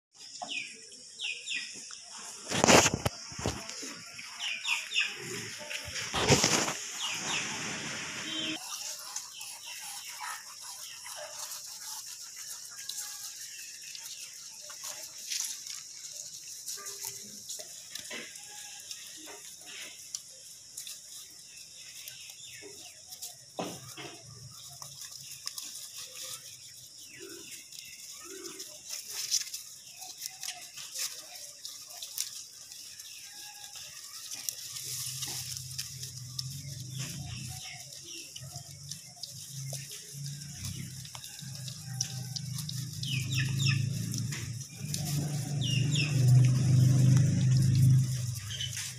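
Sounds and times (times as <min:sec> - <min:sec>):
high-pitched hiss: 0:01.4 - 0:11.0
goats chewing grass: 0:01.7 - 0:48.9.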